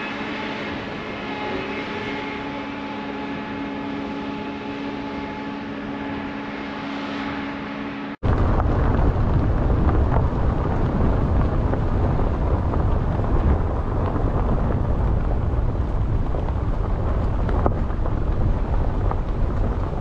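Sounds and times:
vehicle running and road noise: 0.0 - 20.0
wind buffeting microphone: 8.2 - 20.0.

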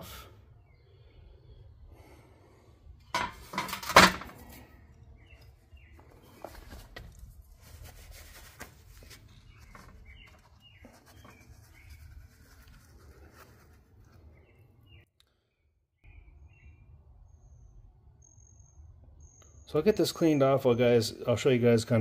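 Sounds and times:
bird chirps: 4.6 - 6.8, 9.1 - 13.2, 14.1 - 21.2.

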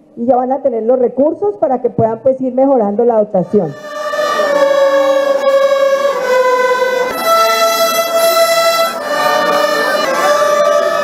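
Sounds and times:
violin ensemble playing: 3.4 - 11.0.

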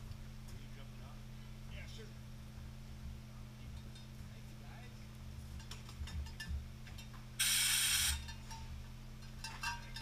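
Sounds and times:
mechanical ratcheting buzz: 7.4 - 8.3.

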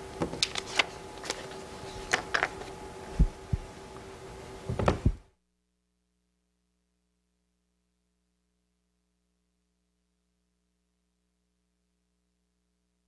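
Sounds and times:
steady electrical hum: 0.0 - 13.0
objects handled on desk: 0.2 - 2.8.

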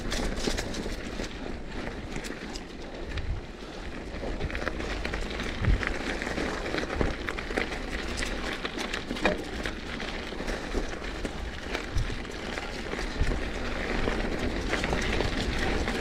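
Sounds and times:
bike tyres on dirt trail: 0.0 - 16.0
bike knocks and clicks: 5.6 - 12.2.

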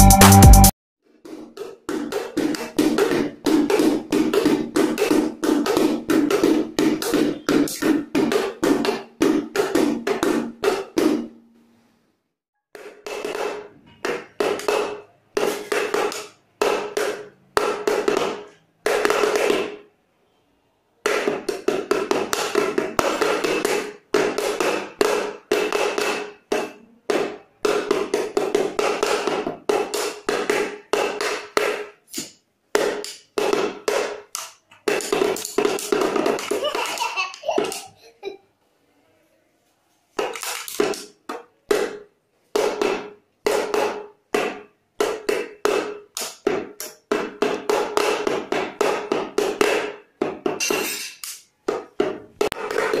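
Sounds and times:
small drum beaten with pencils: 1.3 - 11.4, 40.2 - 51.0, 51.7 - 53.0.

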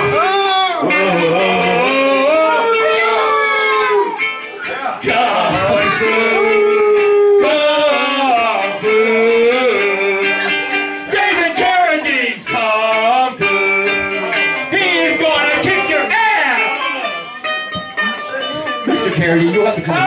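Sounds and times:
person singing: 0.0 - 19.2
ukulele: 4.0 - 20.0.

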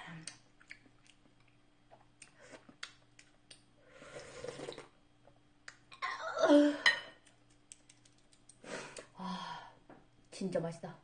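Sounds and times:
person slurping noodles: 4.0 - 4.9
chopsticks clicking: 7.2 - 8.6.

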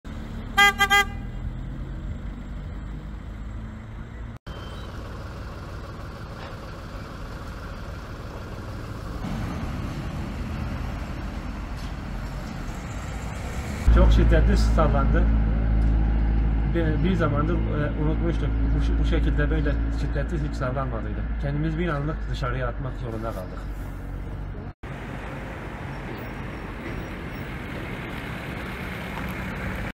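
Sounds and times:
cars driving by: 0.0 - 29.9
street traffic rumble: 0.0 - 30.0
car horn toots: 0.5 - 1.4.

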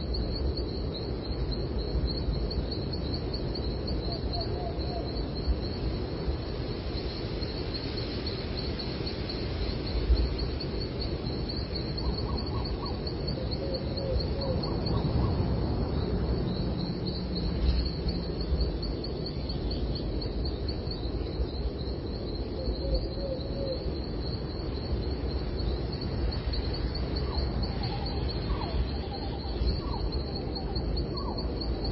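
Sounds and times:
songbirds chirping: 0.0 - 31.9.

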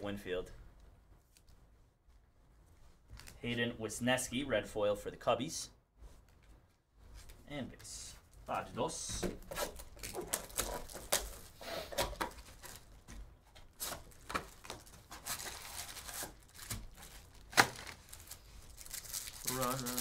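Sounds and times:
foil card packs rustling: 8.5 - 20.0
plastic wrap crinkling and tearing: 9.4 - 20.0.

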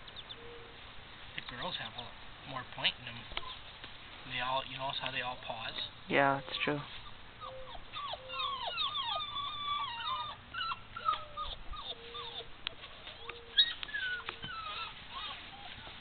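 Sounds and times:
puppy whining: 3.4 - 3.7, 5.6 - 16.0
puppy yip: 7.4 - 16.0.

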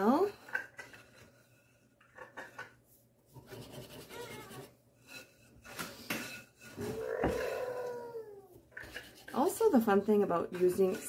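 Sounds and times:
whisk scraping in bowl: 3.4 - 7.5, 8.8 - 11.0.

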